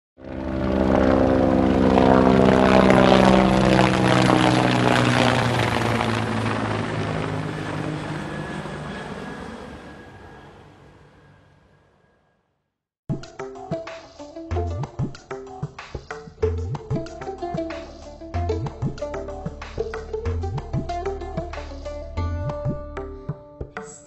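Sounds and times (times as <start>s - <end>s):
propeller aircraft engine drone: 0.2s - 12.2s.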